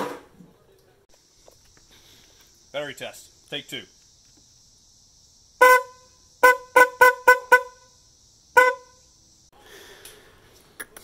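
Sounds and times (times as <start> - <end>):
car horn honks: 5.6 - 7.9, 8.6 - 9.0.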